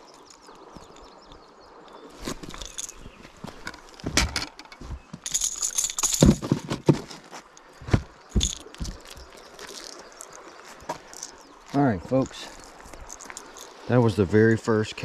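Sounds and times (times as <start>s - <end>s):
metal lure and pliers rattling: 2.3s - 6.4s, 8.3s - 11.6s, 12.6s - 13.8s.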